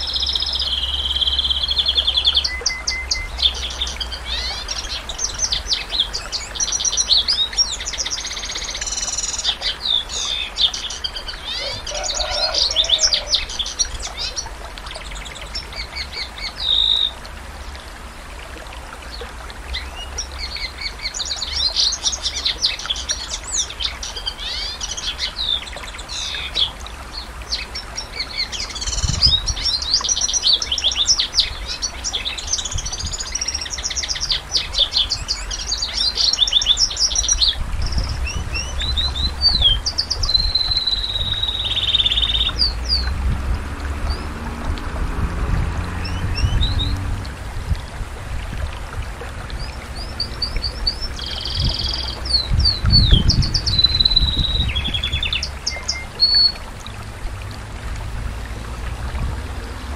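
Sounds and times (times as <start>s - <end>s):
canary singing trills: 0.0s - 17.2s, 27.5s - 43.1s, 49.6s - 56.6s.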